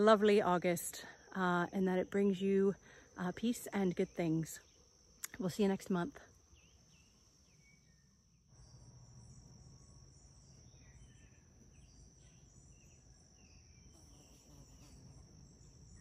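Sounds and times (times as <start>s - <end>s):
insects trilling: 0.0s - 16.0s
short insect chirps: 2.8s - 16.0s.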